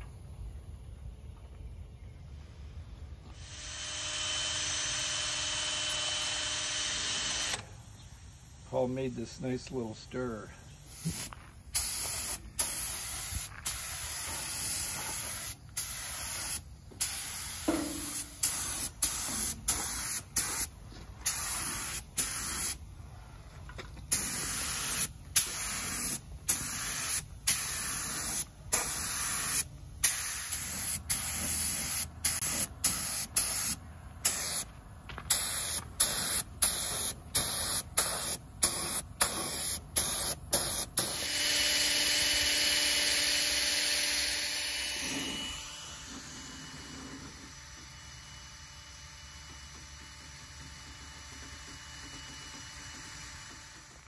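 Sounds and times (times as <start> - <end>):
paint spray gun hissing: 3.3 - 23.0, 24.0 - 45.6.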